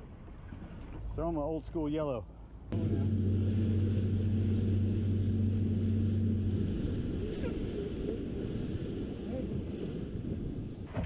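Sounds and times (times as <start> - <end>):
motorboat engine humming: 2.3 - 11.0
wind and water rushing: 2.7 - 11.0.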